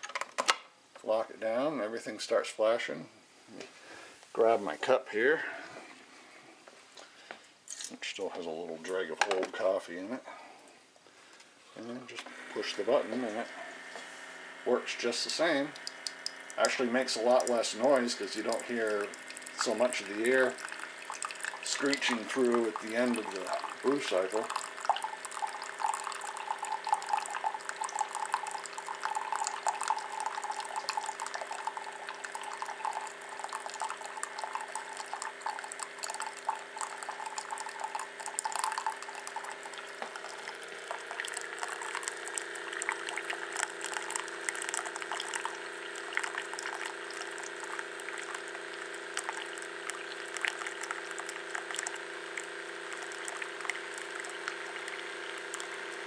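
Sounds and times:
coffee maker pump hum: 11.3 - 56.0
coffee pouring into mug: 12.3 - 56.0.

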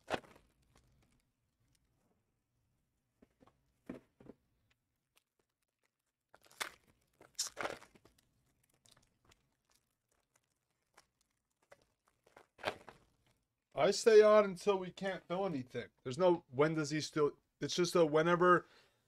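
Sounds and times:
faint plastic rustling: 5.2 - 13.5
plastic wrapping ripping: 6.4 - 13.0.

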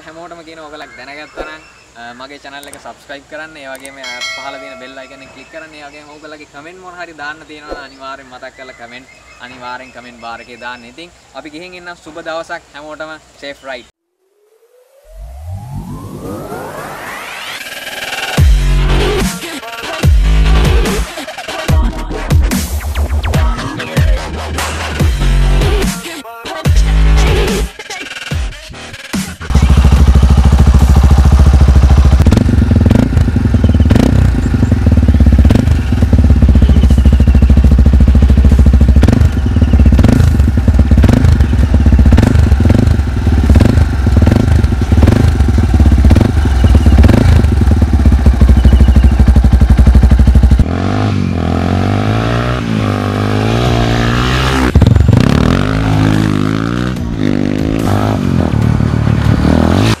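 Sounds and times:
motorcycle engine revving: 29.4 - 60.0.

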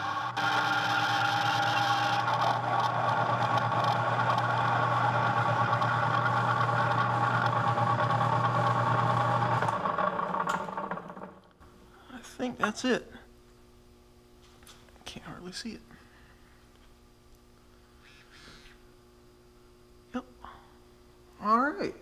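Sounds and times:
metal lathe drilling steel: 0.0 - 11.3
spindle spinning down: 0.0 - 11.5.

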